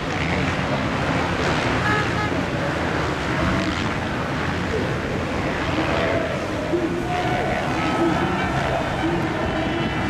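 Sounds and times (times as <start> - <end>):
engine running: 0.0 - 10.0
outdoor crowd hubbub: 0.0 - 10.0
voices: 2.0 - 10.0.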